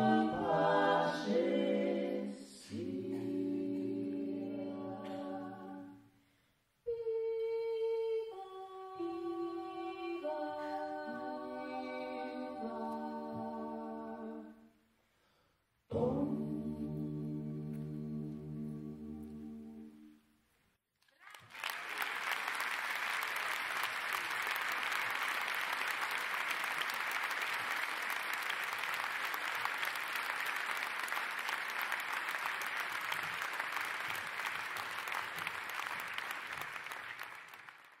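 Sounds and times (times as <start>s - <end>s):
audience applauding: 21.0s - 38.0s.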